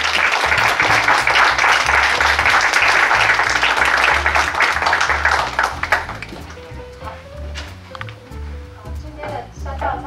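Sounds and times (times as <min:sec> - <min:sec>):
audience applauding: 0:00.0 - 0:06.8
background music with bass line: 0:00.0 - 0:10.0.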